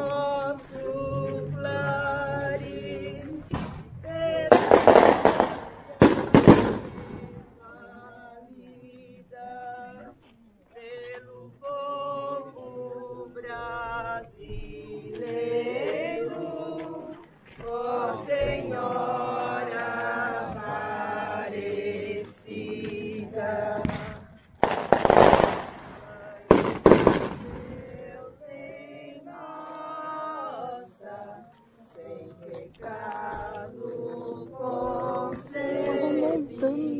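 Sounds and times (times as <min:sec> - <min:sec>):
group of people singing: 0:00.0 - 0:36.9
firecracker bangs: 0:03.5 - 0:07.5, 0:23.8 - 0:28.2.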